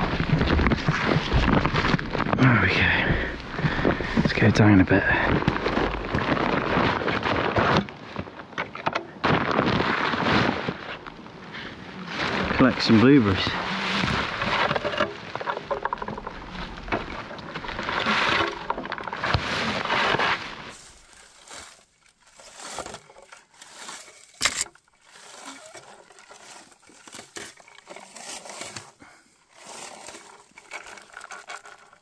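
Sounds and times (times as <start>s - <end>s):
rustling of bushes being picked: 0.0s - 32.0s
small crackles and clicks: 0.0s - 32.0s.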